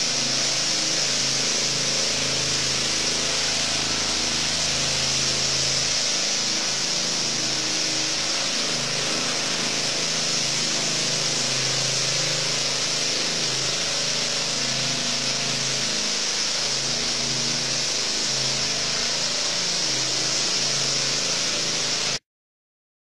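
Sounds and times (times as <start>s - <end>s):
power trowel engine running: 0.0s - 22.2s.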